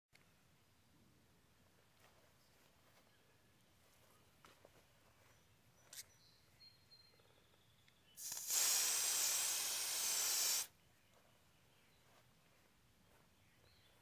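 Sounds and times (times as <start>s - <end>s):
hose nozzle spraying water: 8.2s - 10.7s.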